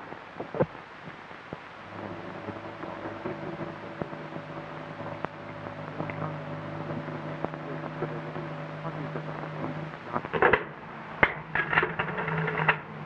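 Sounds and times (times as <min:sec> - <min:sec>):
low hum: 0:00.0 - 0:13.0
metal clicks and rustles: 0:10.4 - 0:12.9.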